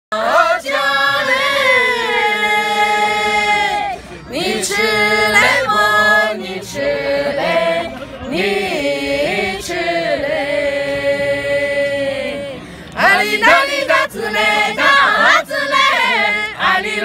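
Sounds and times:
group singing unaccompanied: 0:00.1 - 0:17.0.

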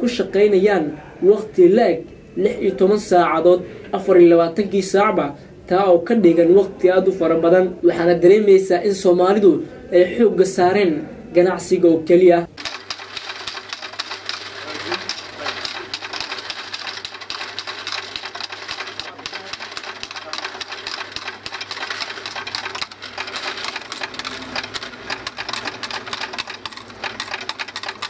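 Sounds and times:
coin sorter motor humming: 0:12.5 - 0:28.0
coins clattering: 0:12.5 - 0:28.0.

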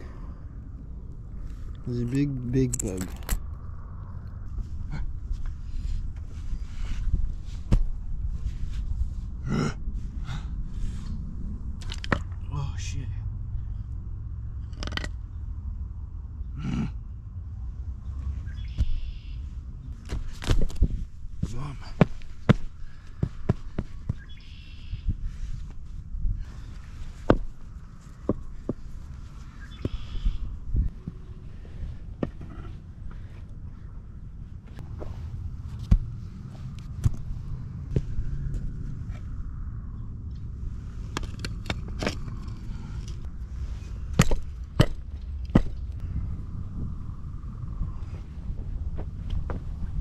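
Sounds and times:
steady low rumble: 0:00.0 - 0:50.0
person grunting: 0:09.4 - 0:10.5, 0:16.6 - 0:17.0
stones knocking together: 0:20.1 - 0:22.6, 0:27.3 - 0:27.5, 0:44.2 - 0:45.8.

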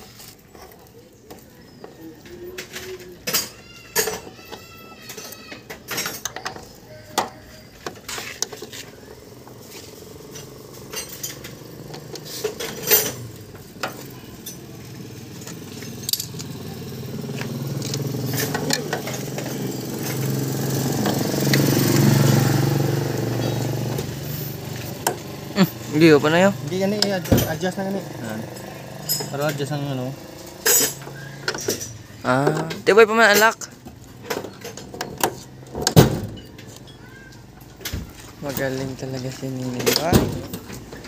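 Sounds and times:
hand tools clicking on metal: 0:00.2 - 0:09.6, 0:10.2 - 0:22.4
passing vehicle engine: 0:08.1 - 0:32.8.

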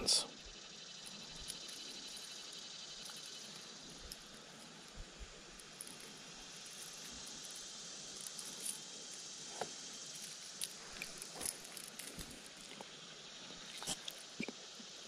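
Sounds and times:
faint high hiss: 0:00.0 - 0:15.0
fishing lure and line clicks: 0:01.0 - 0:13.0.

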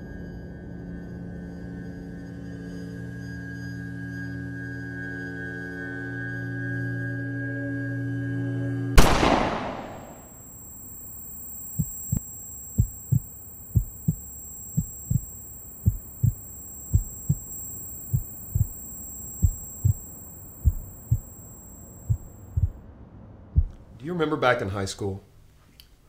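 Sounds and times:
high-pitched ringing tone: 0:09.0 - 0:22.8
heartbeat thumps: 0:11.7 - 0:18.8, 0:19.4 - 0:20.0, 0:20.6 - 0:21.4, 0:22.0 - 0:22.8, 0:23.6 - 0:23.8.

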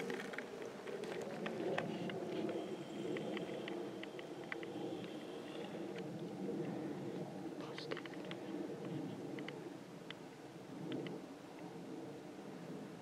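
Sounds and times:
grass and brush rustling: 0:00.0 - 0:10.3.

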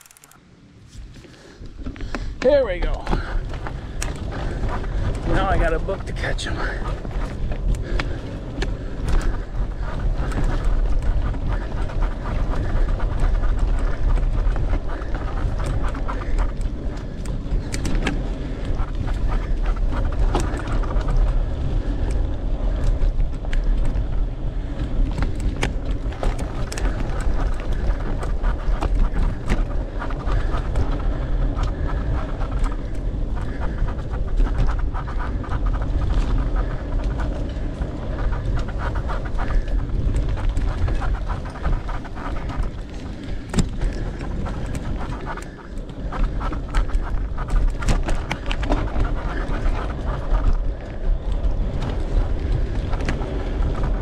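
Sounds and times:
bike rattling over bumps: 0:00.0 - 0:54.0
bike tyres rolling: 0:00.0 - 0:54.0
wind rumbling on microphone: 0:00.0 - 0:54.0
person breathing hard: 0:01.1 - 0:02.4, 0:03.0 - 0:05.3, 0:06.5 - 0:10.6.

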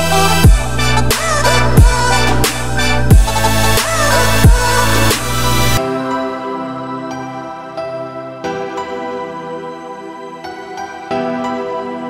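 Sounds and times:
instrumental music sustained chords: 0:00.0 - 0:12.0.

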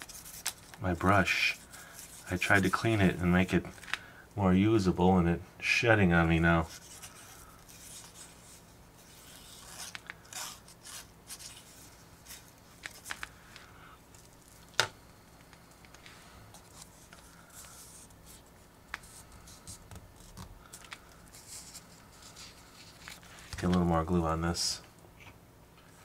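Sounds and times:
paper rustling: 0:00.0 - 0:04.0, 0:06.6 - 0:14.6.

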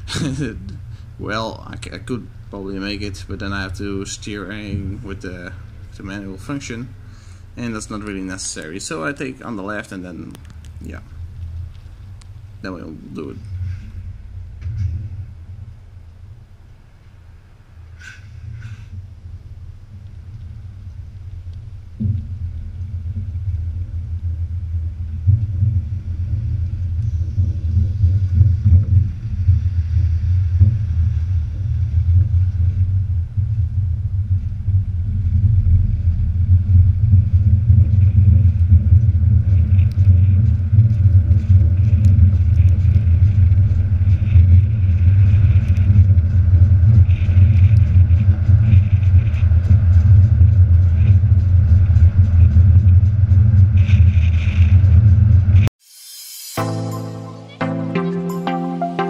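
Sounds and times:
truck trailer rolling rumble: 0:00.0 - 0:17.8, 0:19.0 - 0:55.7
tyre and wind noise: 0:00.0 - 0:55.7
music: 0:56.2 - 0:59.0.

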